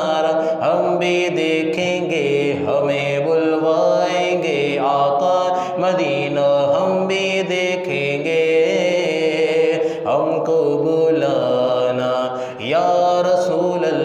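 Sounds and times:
man singing: 0.0s - 14.0s.

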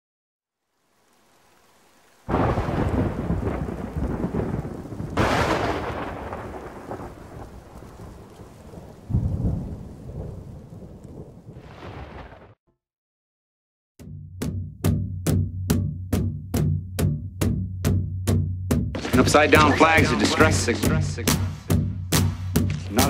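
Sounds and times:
thunder claps and rumble: 2.3s - 12.6s, 19.0s - 23.0s.

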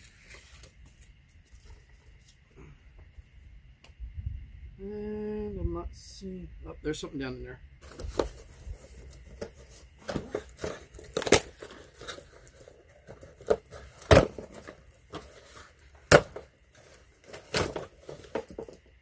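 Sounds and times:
cardboard scraping and crinkling: 0.0s - 2.4s, 7.8s - 18.8s.

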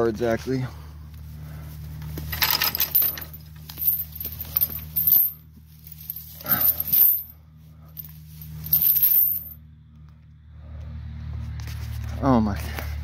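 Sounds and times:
low drone: 0.6s - 13.0s
metallic jingling and clinking: 2.2s - 9.6s.

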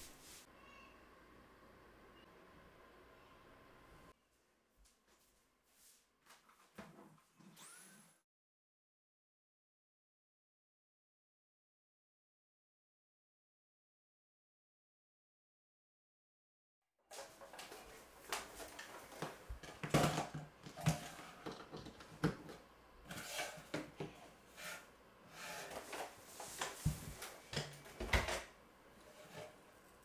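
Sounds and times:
robot vacuum set on wooden floor: 17.1s - 29.7s.

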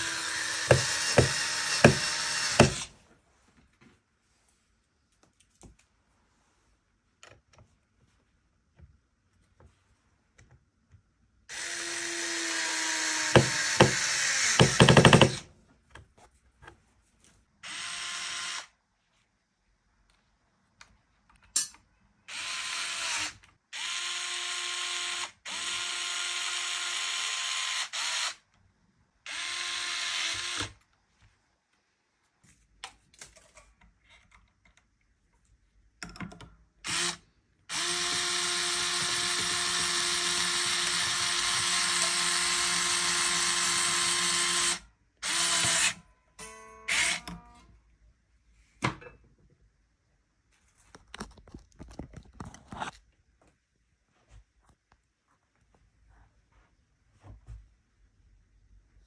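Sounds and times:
power drill running: 0.0s - 2.9s, 11.5s - 15.4s, 17.6s - 18.7s, 22.3s - 28.4s, 29.3s - 30.8s, 36.8s - 46.0s, 46.9s - 47.4s.

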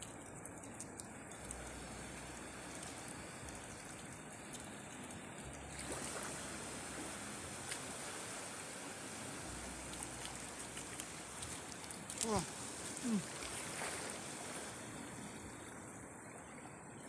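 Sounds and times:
seawater sloshing at shoreline: 1.4s - 17.0s.

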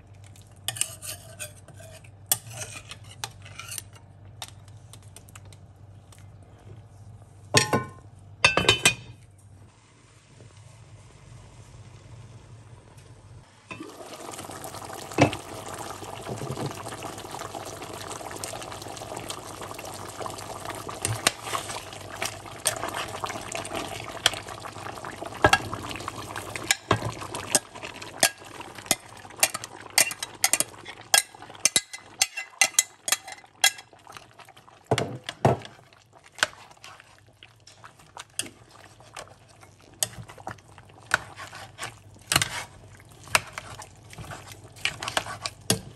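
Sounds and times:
stew bubbling in pot: 13.5s - 45.9s.

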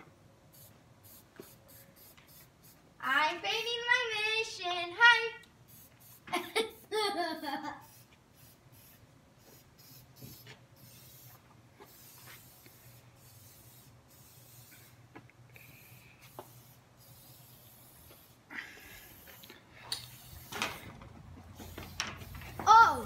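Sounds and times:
spray can hissing: 0.5s - 2.8s, 5.6s - 23.0s
child's voice: 3.0s - 5.5s, 22.5s - 23.0s.

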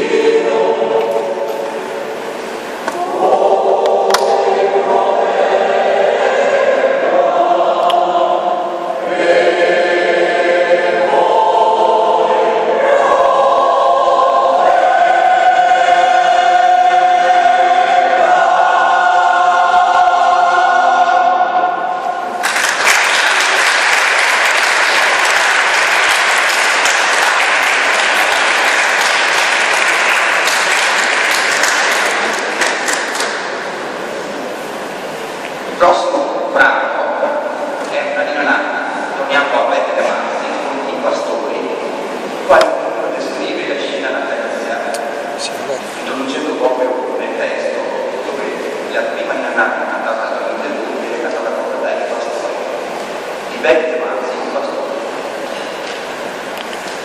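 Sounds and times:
mixed choir singing: 0.0s - 54.2s
audience applause: 22.4s - 33.5s.

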